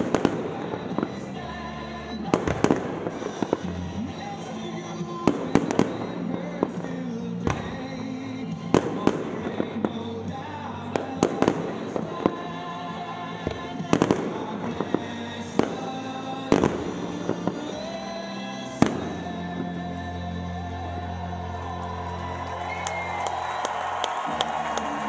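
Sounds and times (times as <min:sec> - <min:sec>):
fireworks bangs: 0:00.0 - 0:18.2, 0:18.8 - 0:19.8
music playing: 0:00.0 - 0:25.0.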